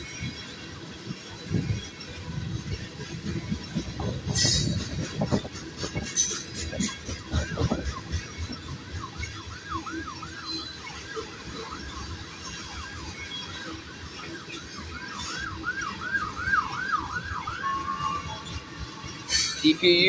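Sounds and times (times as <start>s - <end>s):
freight train rolling past: 0.0s - 20.0s
wheels clicking on rails: 0.0s - 20.0s
siren yelping: 7.5s - 13.6s, 14.8s - 18.5s.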